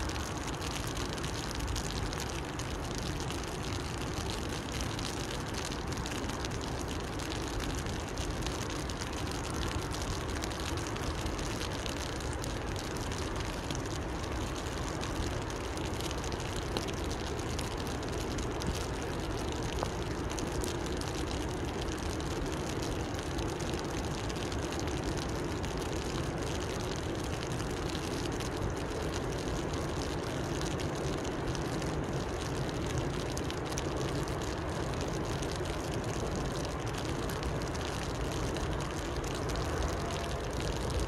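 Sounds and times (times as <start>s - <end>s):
rain falling on a river: 0.0s - 41.0s.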